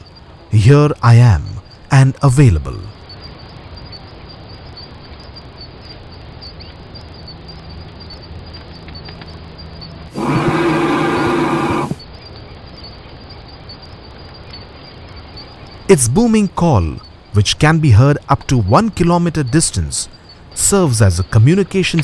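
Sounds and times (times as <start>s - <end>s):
faint insect ticking: 0.0s - 22.0s
bird deep booming call: 10.2s - 12.0s.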